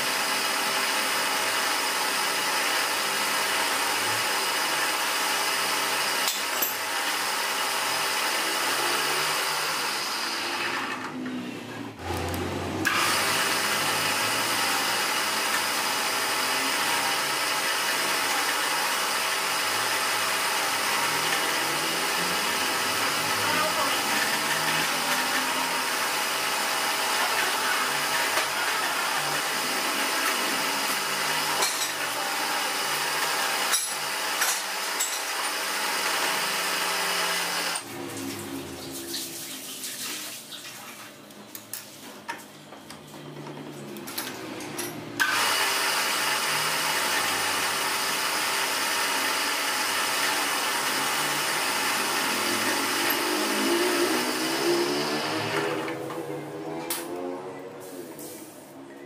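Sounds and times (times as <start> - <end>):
fly cutter machining aluminium: 12.9 - 37.8, 45.2 - 55.8.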